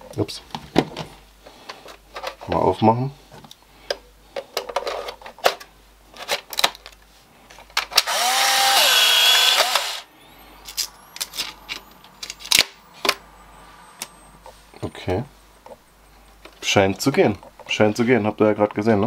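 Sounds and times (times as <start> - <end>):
camera motor whirring: 8.0 - 10.1.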